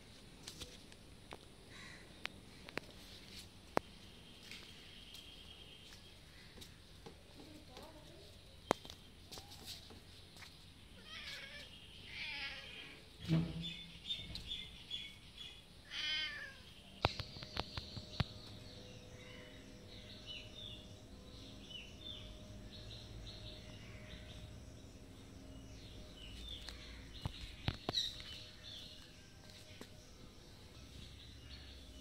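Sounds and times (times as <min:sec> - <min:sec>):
birds chirping: 0:01.6 - 0:32.0
cat meowing: 0:15.9 - 0:16.7.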